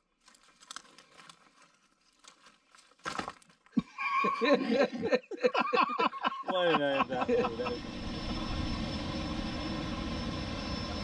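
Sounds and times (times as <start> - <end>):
crackle of burning kindling: 0.0 - 3.8
wood clattering: 0.2 - 3.8.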